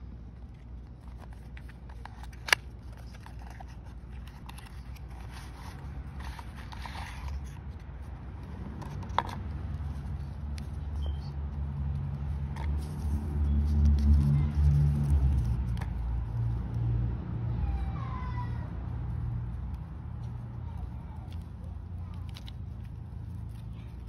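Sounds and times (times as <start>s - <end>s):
cardboard scraping and rustling: 0.4s - 10.2s.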